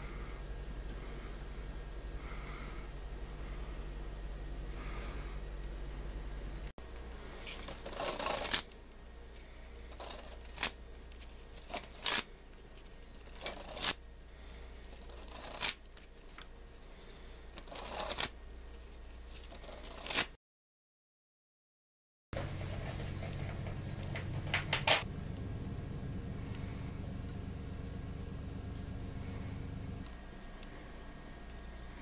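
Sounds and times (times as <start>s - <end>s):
steady low hum: 0.0s - 20.1s, 22.4s - 32.0s
playing cards riffling: 7.4s - 8.7s, 9.9s - 14.0s, 15.0s - 16.5s, 17.6s - 18.4s, 19.3s - 20.3s.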